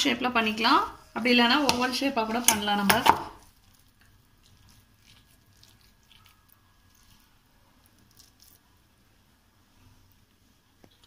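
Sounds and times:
hands squishing wet mixture: 0:03.4 - 0:08.7.

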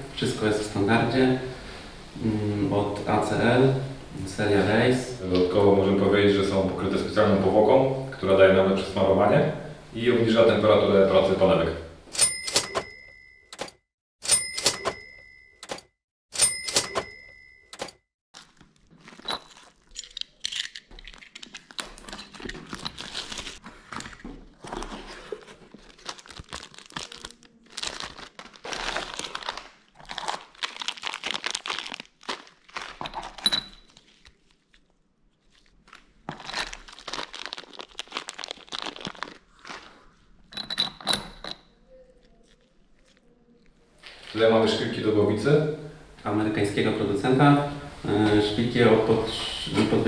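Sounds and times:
cardboard packaging being opened: 0:18.4 - 0:40.2
plastic wrap crinkling and tearing: 0:18.4 - 0:40.4, 0:42.0 - 0:44.4.

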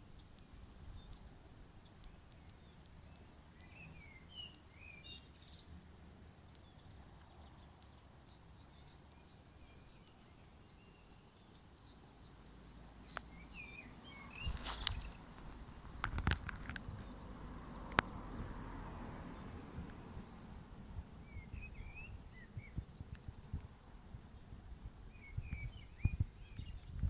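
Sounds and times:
distant birds chirping: 0:00.0 - 0:27.0
click: 0:01.9 - 0:03.8, 0:17.9 - 0:18.1.

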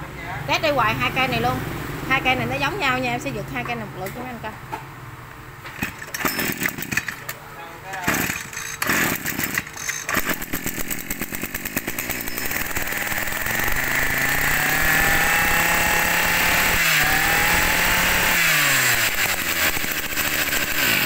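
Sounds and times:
brush cutter engines running: 0:05.8 - 0:21.0.

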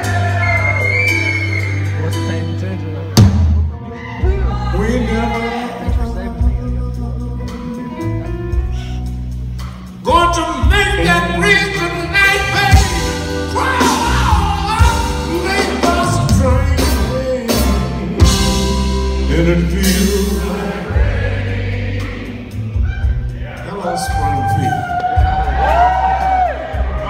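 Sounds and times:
live blues band: 0:00.0 - 0:27.0
person singing: 0:10.1 - 0:21.1.

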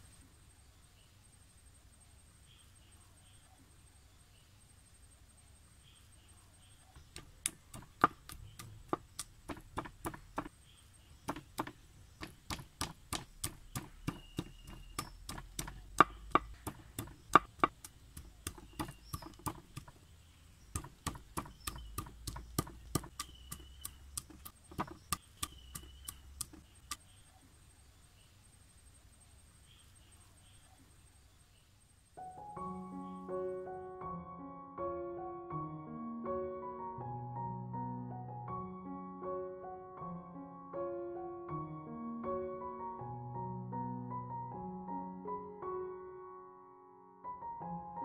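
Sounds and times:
knife chopping on wooden board: 0:07.0 - 0:10.5, 0:11.2 - 0:20.0, 0:20.7 - 0:27.0.

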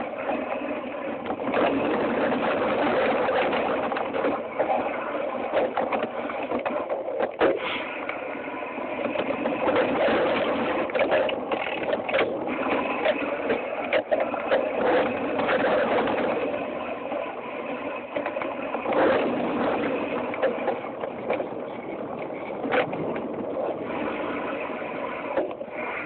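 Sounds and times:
bike tyre noise on dirt: 0:00.0 - 0:26.0
wind rush: 0:00.0 - 0:26.0
bike and camera mount rattling: 0:09.0 - 0:16.8.

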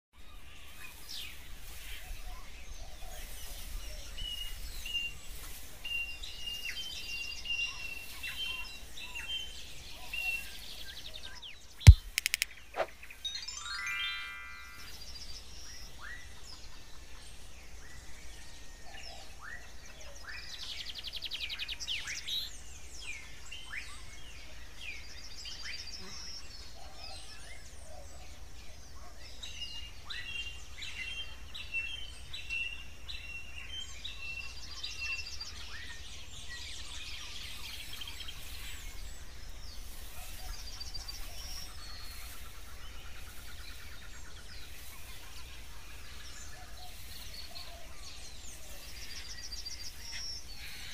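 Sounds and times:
birds chirping and trilling: 0:00.2 - 0:50.9.

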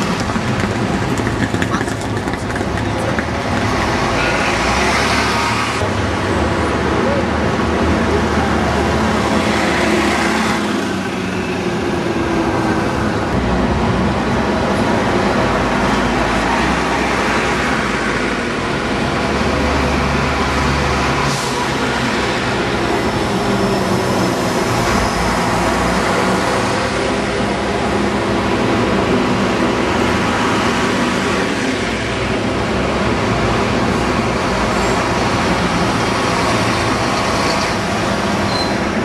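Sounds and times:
city street traffic: 0:00.0 - 0:39.0
diesel buses passing: 0:00.0 - 0:39.0.

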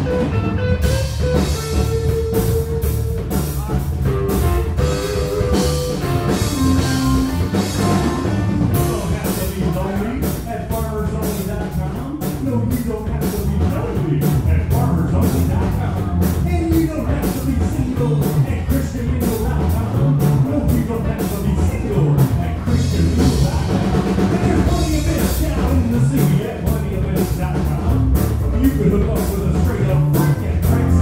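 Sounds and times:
electric guitar: 0:00.0 - 0:09.4
drum kit beat: 0:00.0 - 0:31.0
electric bass: 0:00.0 - 0:31.0
man singing: 0:01.4 - 0:31.0.

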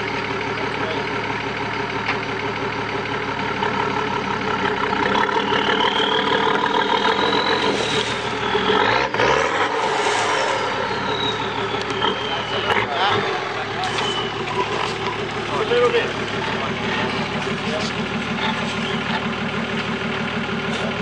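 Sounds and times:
truck engine idling and revving: 0:00.0 - 0:21.0
high whine: 0:05.3 - 0:17.8.

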